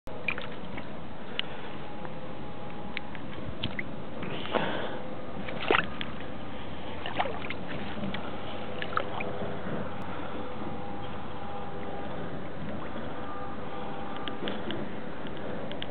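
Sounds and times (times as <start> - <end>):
water sloshing with wet cloth: 0.1 - 1.7, 5.4 - 15.9
steady rushing water: 0.1 - 15.9.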